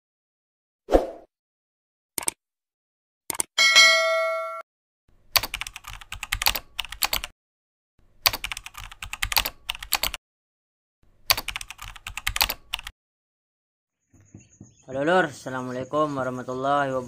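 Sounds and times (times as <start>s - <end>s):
keyboard typing clicks: 3.3s - 3.5s, 5.4s - 7.3s, 8.2s - 10.2s, 11.3s - 12.9s.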